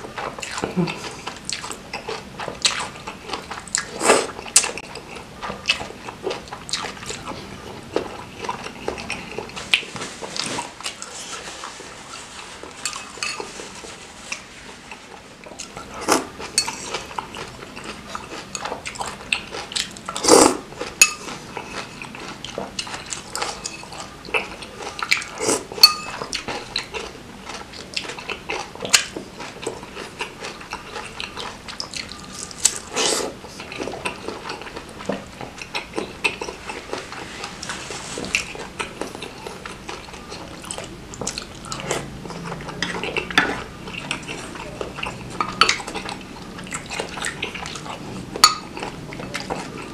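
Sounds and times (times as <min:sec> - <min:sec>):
chewing: 0:00.0 - 0:49.9
cutlery clinking on ceramic bowls: 0:12.8 - 0:13.6, 0:15.6 - 0:17.0, 0:18.3 - 0:19.1, 0:21.0 - 0:22.0, 0:23.0 - 0:26.3, 0:42.8 - 0:47.8, 0:48.4 - 0:49.8.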